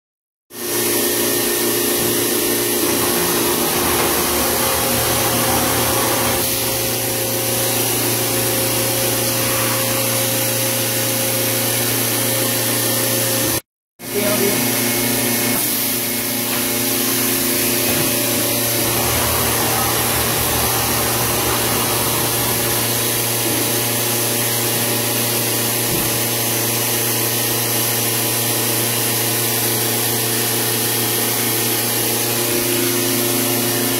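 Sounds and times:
machine motor hum: 0:01.2 - 0:12.2, 0:16.6 - 0:24.5.

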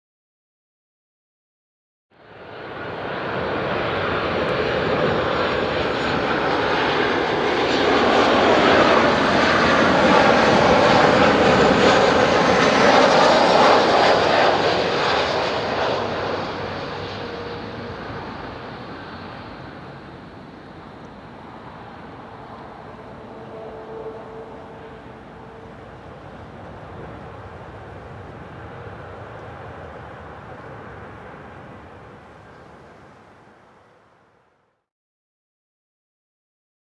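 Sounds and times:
jet airliner passing low: 0:02.2 - 0:34.5.

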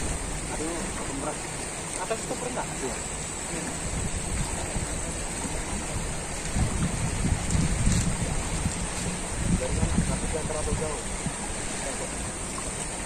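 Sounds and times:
wind buffeting microphone: 0:00.0 - 0:02.6, 0:03.5 - 0:13.0
fast-flowing river: 0:00.0 - 0:13.0.

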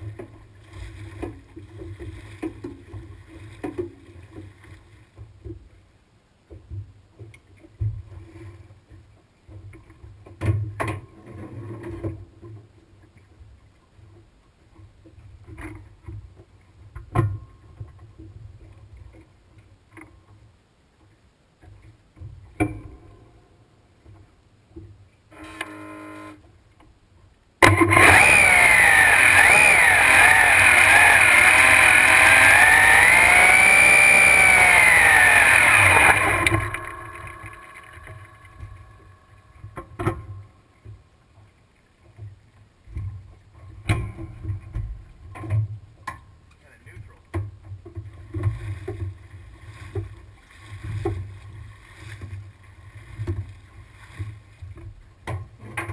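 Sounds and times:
starter cranking: 0:27.6 - 0:39.7
loud supercharged engine running: 0:27.8 - 0:39.4.

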